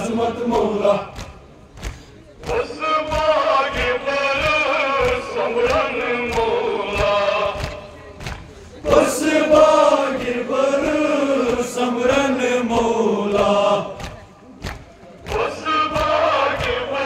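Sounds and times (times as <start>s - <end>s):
men chanting a lament in unison: 0.0s - 1.5s, 2.4s - 8.2s, 8.8s - 14.3s, 15.3s - 17.0s
chest-beating slaps: 1.1s - 8.5s.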